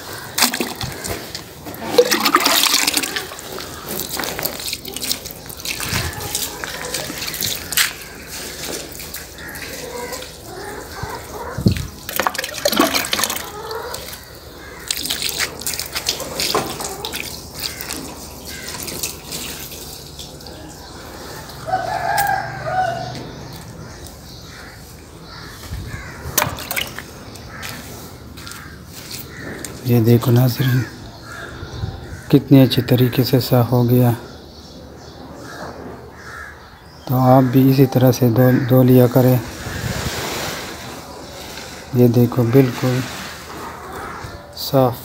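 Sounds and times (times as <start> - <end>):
water pouring and splashing: 0.0 - 21.7, 25.7 - 29.3, 39.1 - 44.1
rooster crowing: 21.6 - 23.2.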